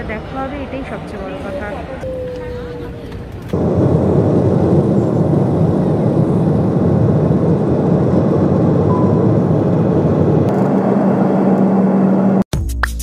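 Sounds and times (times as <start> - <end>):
jet engine cabin rush: 0.0 - 12.4
steady low hum: 0.0 - 12.4.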